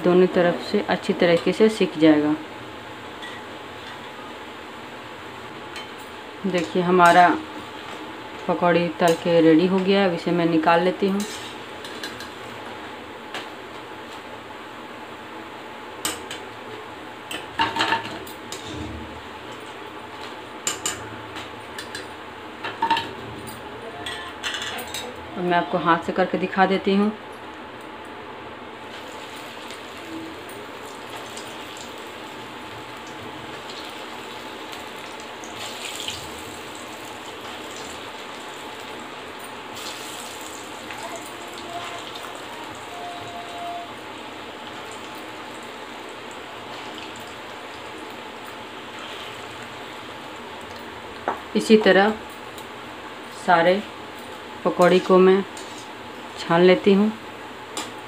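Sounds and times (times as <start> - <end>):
food deep-frying in oil: 28.8 - 52.8.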